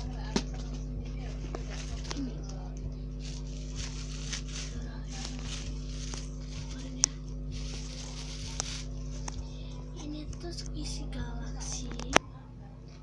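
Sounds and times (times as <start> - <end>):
plastic packaging crinkling: 0.4 - 9.5.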